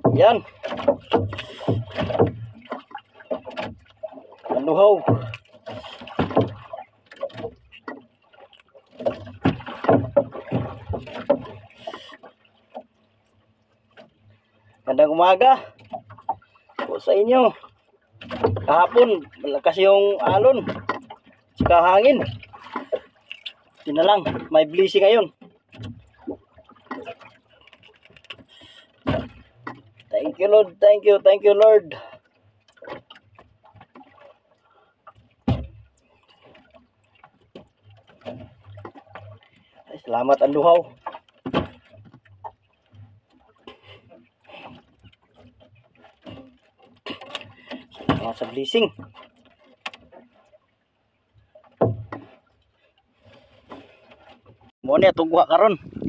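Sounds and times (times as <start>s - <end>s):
dull thump: 0.0s - 2.6s, 35.4s - 35.8s
fishing line ticks and rustles: 22.2s - 23.9s, 25.4s - 30.2s, 40.4s - 50.6s.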